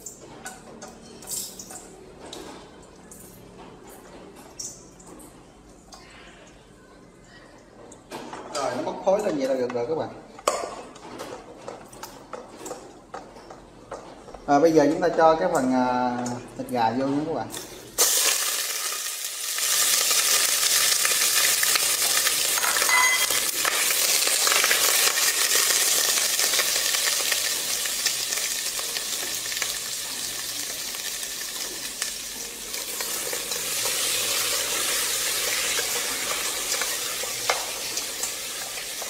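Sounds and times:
meat sizzling in oil: 18.0 - 39.0.

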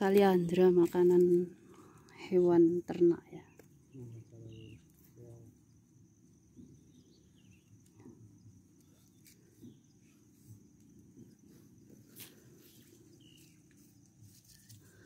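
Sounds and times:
low voice murmuring: 3.9 - 5.5.

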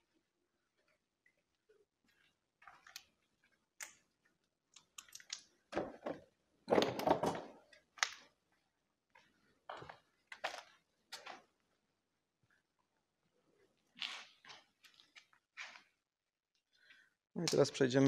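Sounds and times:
short scrapes and crunches: 13.9 - 16.0.

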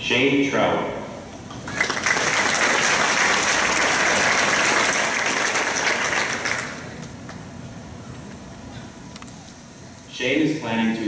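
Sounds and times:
audience applauding: 1.5 - 7.4.

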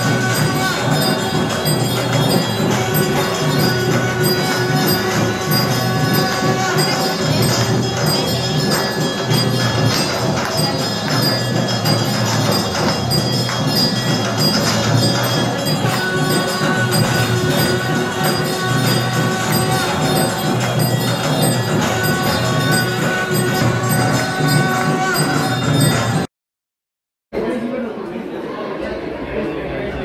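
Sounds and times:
jingling percussion: 0.0 - 26.3
temple bells ringing: 0.0 - 26.3.

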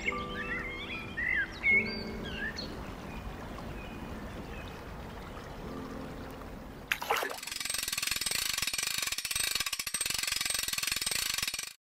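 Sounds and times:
fishing reel ratcheting: 7.4 - 11.8.

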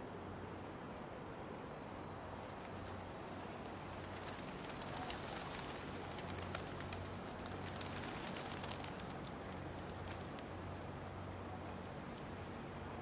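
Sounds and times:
pigeons: 2.2 - 11.8.

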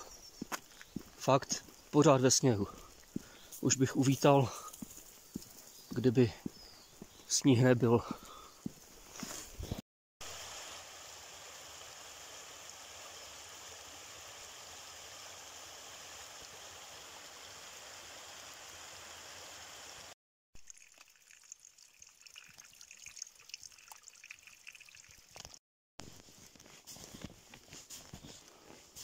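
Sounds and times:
stream running over rocks: 10.2 - 25.6
water trickling and dripping: 20.6 - 25.6.

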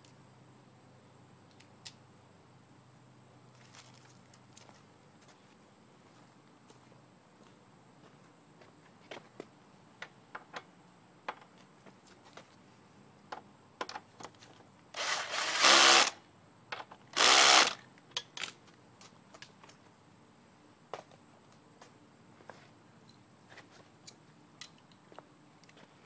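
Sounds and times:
power drill running: 15.0 - 16.2, 17.2 - 17.8
clicks and taps of tools: 24.0 - 25.0.

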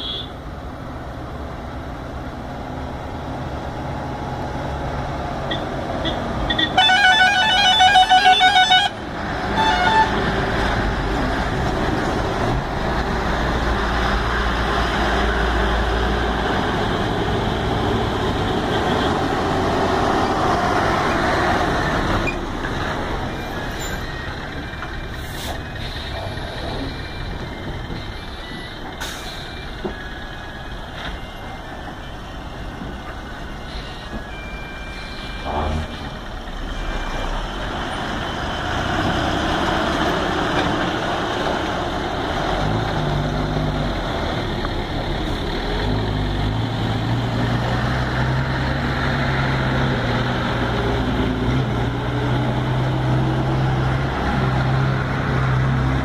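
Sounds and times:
lorry diesel engines labouring: 0.0 - 56.0
pulsing multi-tone horn: 6.0 - 9.0, 9.6 - 10.2.

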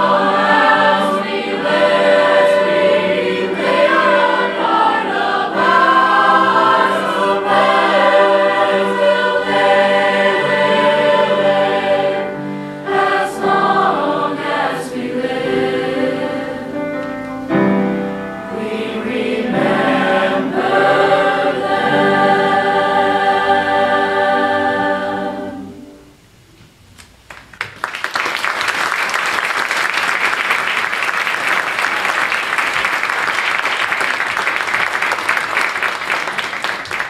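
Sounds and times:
choir holding a chord: 0.0 - 26.2
audience applause: 27.3 - 37.0.

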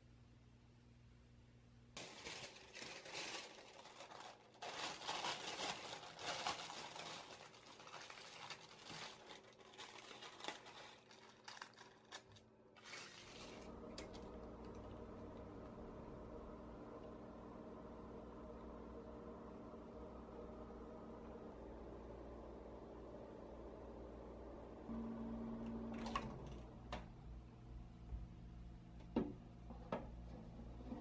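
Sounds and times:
faint steady hum: 0.0 - 31.0
baking paper crinkling: 2.0 - 14.3.

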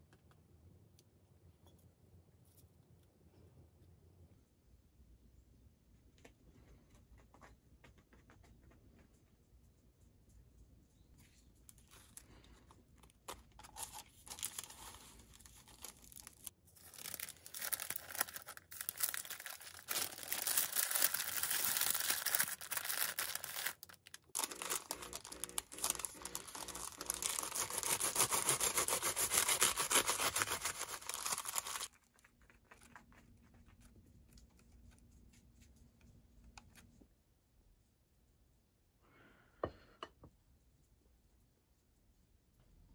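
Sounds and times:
soft handling sounds: 11.0 - 27.7
baking paper crinkling: 11.2 - 34.7.

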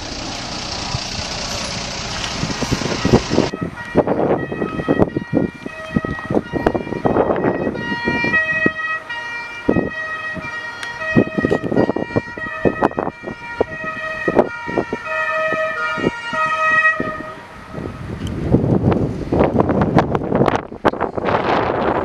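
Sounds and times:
wind buffeting microphone: 0.7 - 22.0
two-tone fire engine siren: 1.6 - 18.2.

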